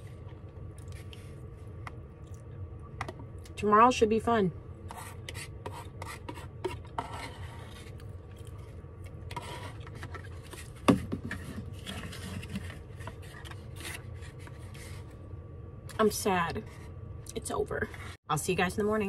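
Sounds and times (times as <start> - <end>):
steady low hum: 0.0 - 19.0
plastic spoon scraping paper bowl: 4.9 - 8.1, 9.3 - 15.0.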